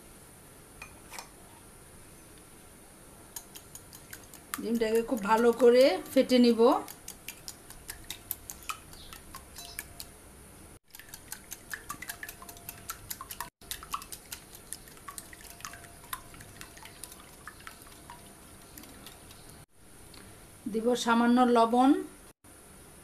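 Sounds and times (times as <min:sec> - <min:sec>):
whisk clicking against glass bowl: 0:03.4 - 0:10.2, 0:10.9 - 0:19.6.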